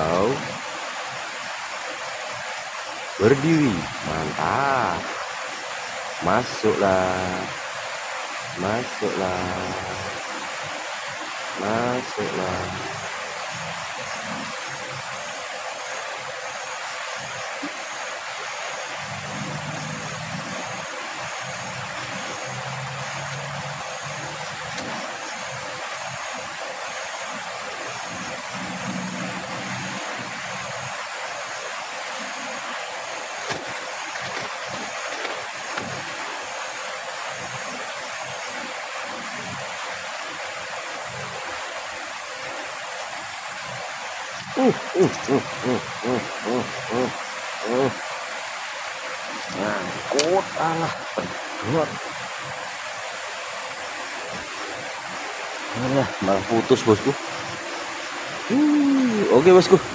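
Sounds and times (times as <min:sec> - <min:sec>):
flowing river water: 0:00.0 - 0:59.9.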